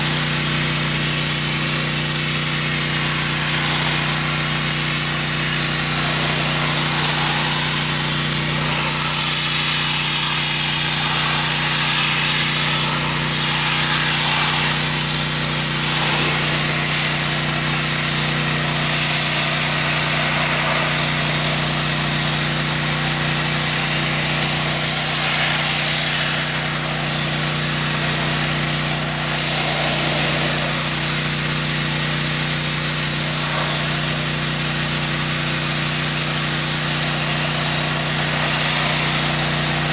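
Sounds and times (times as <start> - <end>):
pressure washer hissing: 0.0 - 39.9.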